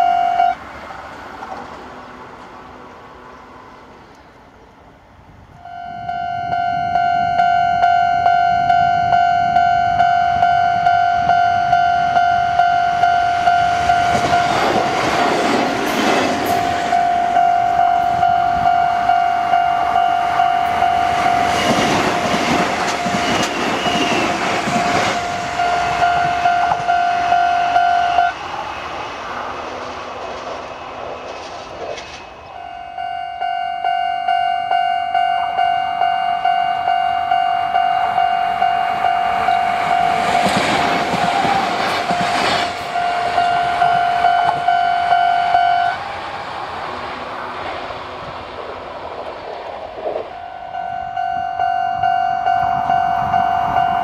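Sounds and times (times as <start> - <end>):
level-crossing alarm bells ringing: 0.0 - 0.6, 5.6 - 28.4, 32.4 - 46.0, 50.3 - 54.0
trains rushing past: 0.0 - 54.0.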